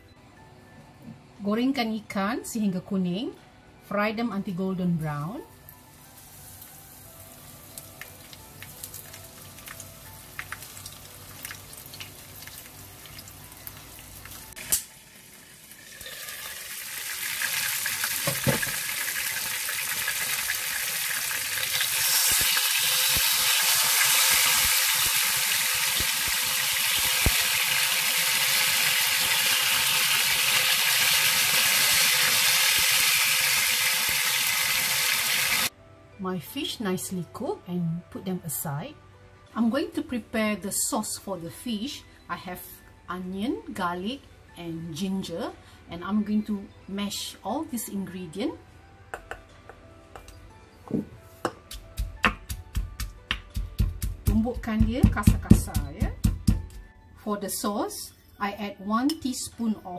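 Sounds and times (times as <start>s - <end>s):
fish sizzling in oil: 5.8s - 35.7s.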